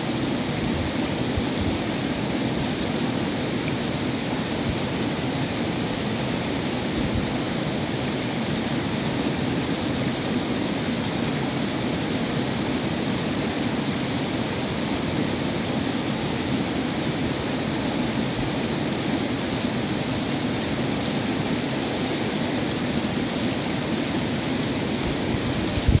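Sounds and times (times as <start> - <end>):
water rushing over boulders: 0.0 - 26.0.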